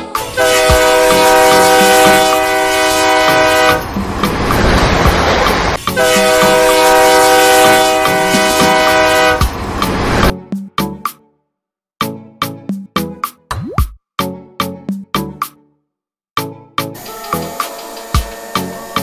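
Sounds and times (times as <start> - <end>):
toy train whistle: 0.1 - 3.8, 5.8 - 9.5, 17.0 - 19.0
simulated steam hiss: 17.0 - 19.0.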